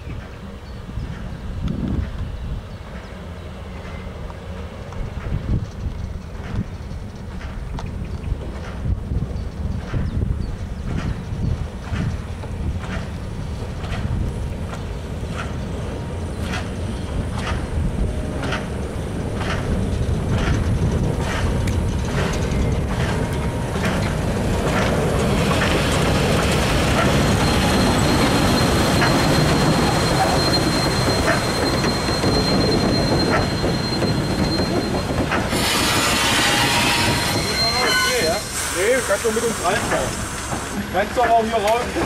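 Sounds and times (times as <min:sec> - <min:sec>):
wheels rumbling on rail: 0:00.0 - 0:42.0
steam locomotive beats: 0:00.2 - 0:42.0
thin steady squeal: 0:25.5 - 0:40.2.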